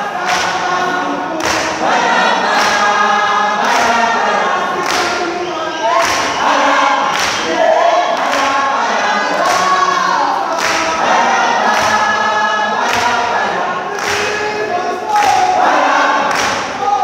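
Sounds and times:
group singing in chorus: 0.0s - 17.0s
sharp hand claps: 0.2s - 0.7s, 1.4s - 1.9s, 2.5s - 2.9s, 4.8s - 5.3s, 5.9s - 8.6s, 10.5s - 11.0s, 11.6s - 12.2s, 12.8s - 13.2s, 13.9s - 14.5s, 15.1s - 16.9s.

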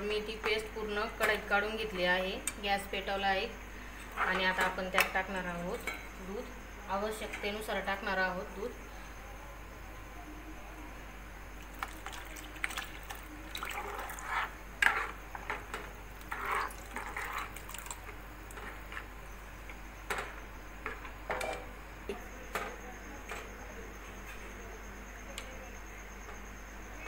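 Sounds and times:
milk pouring and splashing: 11.6s - 14.3s, 16.2s - 18.6s.

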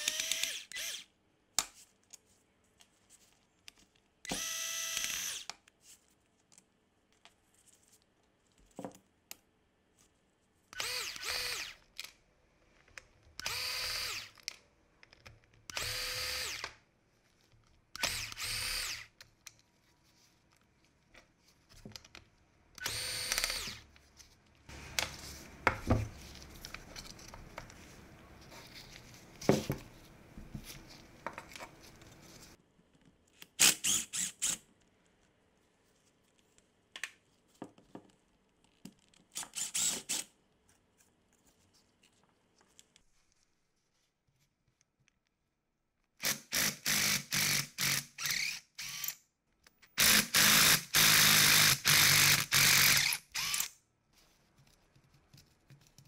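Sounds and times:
electric screwdriver whirring: 0.0s - 1.1s, 4.3s - 5.5s, 10.8s - 11.8s, 13.4s - 14.4s, 15.7s - 16.7s, 18.0s - 19.1s, 22.8s - 23.8s, 33.6s - 34.6s, 39.5s - 40.2s, 46.2s - 49.2s, 50.0s - 53.7s.

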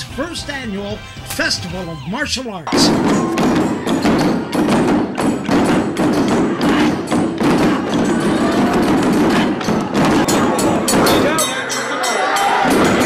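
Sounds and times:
taiko drums playing: 2.7s - 11.5s.

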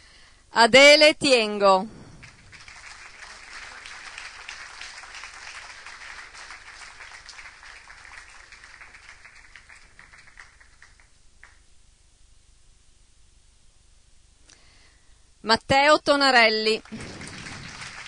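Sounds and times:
audience applause: 2.0s - 11.6s, 16.7s - 18.0s.

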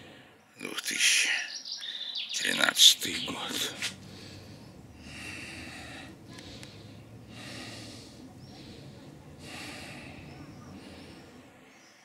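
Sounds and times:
faint bird chirps: 0.4s - 12.0s
low steady hum: 3.0s - 11.8s
heavy breathing: 3.3s - 12.0s.

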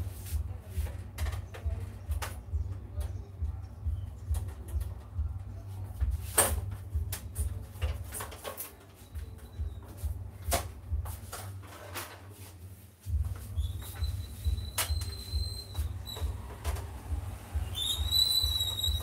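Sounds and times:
faint high whistling tone: 13.6s - 16.3s, 17.6s - 19.0s.

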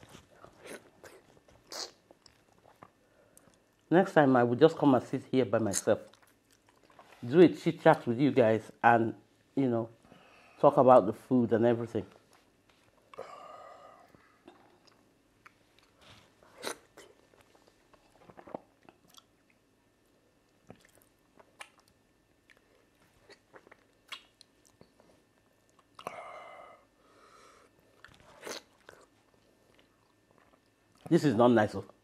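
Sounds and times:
wet chewing and lip smacks: 5.8s - 7.2s, 16.6s - 19.6s, 20.5s - 25.0s
sharp mouth clicks: 24.1s - 24.9s.

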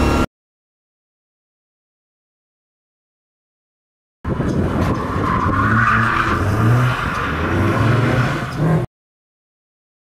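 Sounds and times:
car engine wavering: 0.0s - 0.3s, 4.3s - 8.9s.

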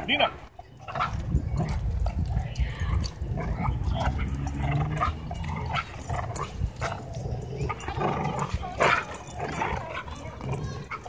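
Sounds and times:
dog growling: 3.1s - 11.0s.

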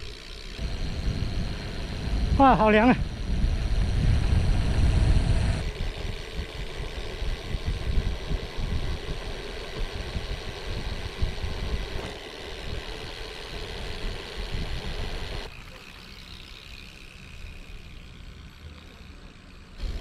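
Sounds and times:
wind buffeting microphone: 0.6s - 12.9s.

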